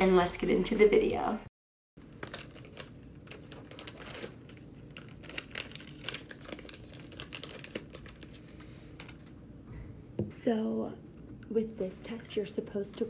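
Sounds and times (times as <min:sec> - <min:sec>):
plastic wrapper crinkling: 0:02.0 - 0:09.4.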